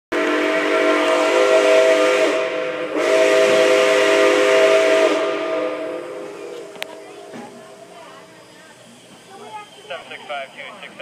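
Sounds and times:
steam whistle blasts: 0.1s - 6.8s
steam hissing: 0.2s - 11.0s.

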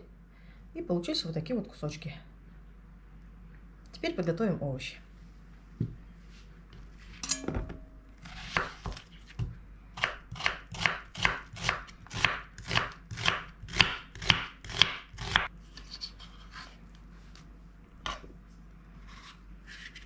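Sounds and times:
knife slicing onion on wooden board: 8.2s - 16.7s.

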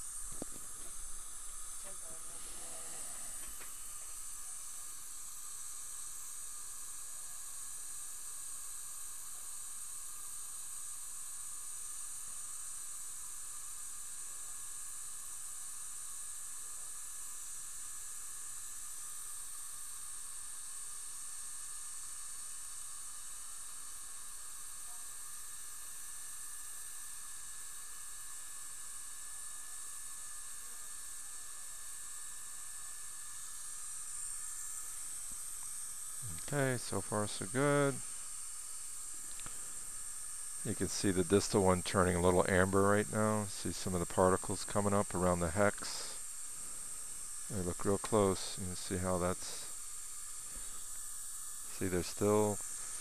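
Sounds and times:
dental equipment hissing: 0.0s - 7.0s, 31.0s - 53.0s.

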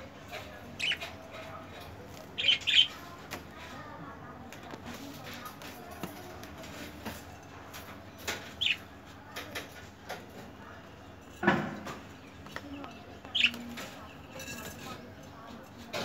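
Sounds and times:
bird scuffle: 11.9s - 15.0s.

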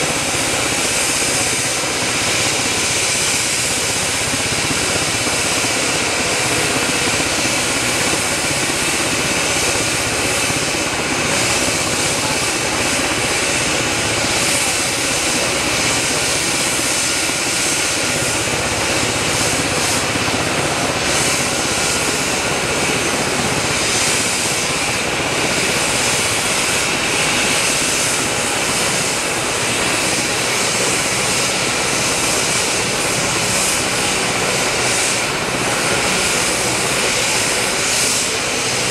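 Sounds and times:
helicopter turbine whine and rotors: 0.0s - 38.9s.

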